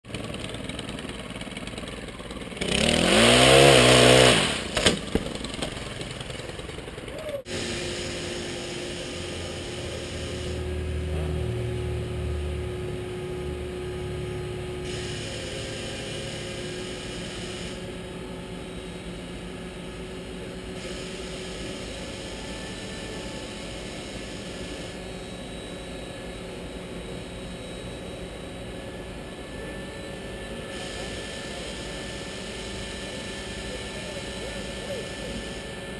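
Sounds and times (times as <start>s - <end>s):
crane engine revving and rumbling: 0.1s - 35.9s.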